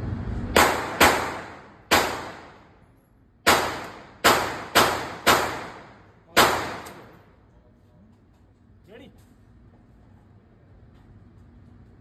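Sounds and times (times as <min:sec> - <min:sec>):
handgun shots echoing indoors: 0:00.5 - 0:02.8, 0:03.4 - 0:07.2.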